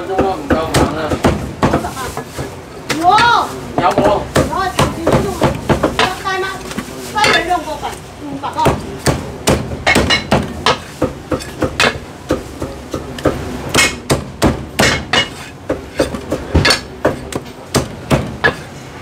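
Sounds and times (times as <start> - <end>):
cleaver chopping on wooden block: 8.6 - 18.6.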